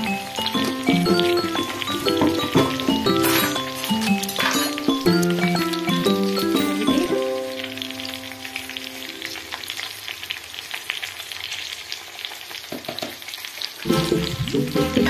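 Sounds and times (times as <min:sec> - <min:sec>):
background music: 0:00.0 - 0:09.3, 0:13.9 - 0:15.0
vegetables sizzling in oil: 0:00.0 - 0:15.0.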